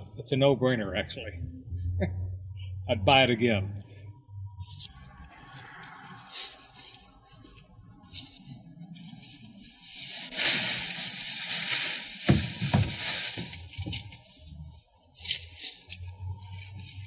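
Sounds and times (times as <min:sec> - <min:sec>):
leaves pouring and rustling: 0:06.0 - 0:07.6, 0:09.1 - 0:14.5
thumps: 0:12.2 - 0:14.2.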